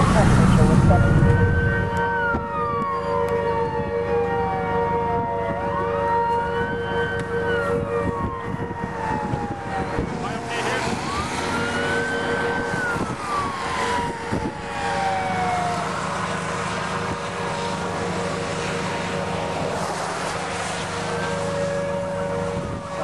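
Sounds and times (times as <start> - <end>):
siren wailing: 0.0 - 23.0
vehicle noise: 0.0 - 23.0
wind noise: 3.6 - 20.8, 22.1 - 23.0.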